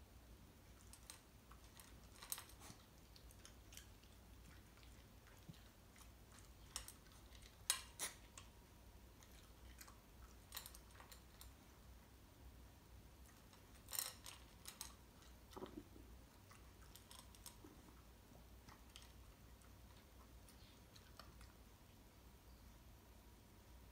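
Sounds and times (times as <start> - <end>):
dog crunching dry kibble: 0.6 - 11.7, 13.2 - 21.6
kibble clicking in metal bowl: 0.8 - 4.0, 9.3 - 11.5, 13.4 - 15.7.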